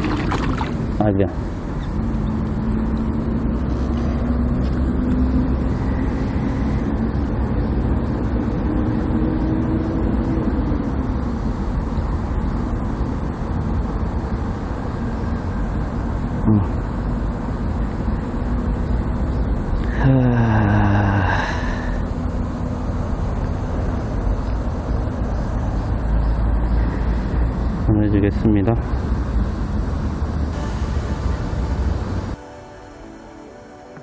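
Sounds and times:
stream water rushing around legs: 0.0 - 1.0
faint hum: 30.5 - 34.0.

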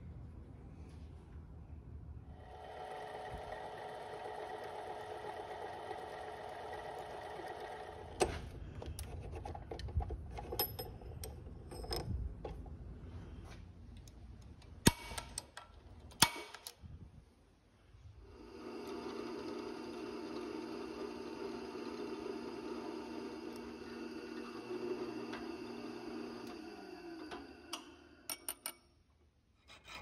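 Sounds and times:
lathe motor and gear whine: 2.4 - 8.2, 18.3 - 28.3
metallic clicks and knocks: 8.8 - 12.8.

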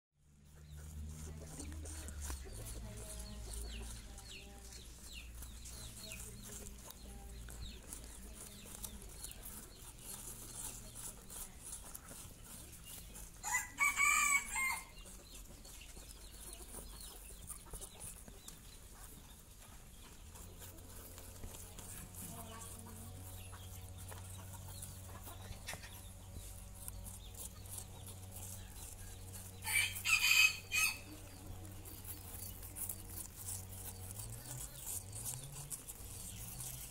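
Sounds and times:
rabbits chewing apple: 0.3 - 36.9
rooster crowing: 13.4 - 14.9, 29.6 - 31.1.

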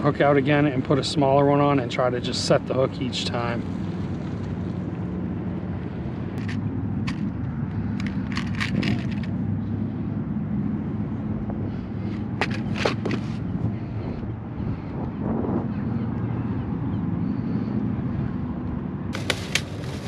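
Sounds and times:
fishing hooks clicking and rattling: 6.4 - 7.3, 7.9 - 9.3.

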